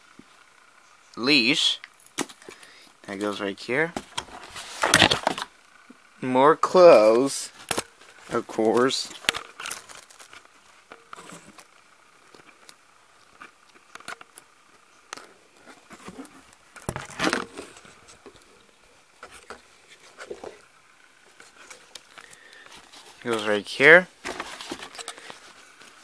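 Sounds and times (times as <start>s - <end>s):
packaging rustling and crinkling: 4.0s - 5.5s, 7.5s - 14.4s, 15.2s - 26.0s.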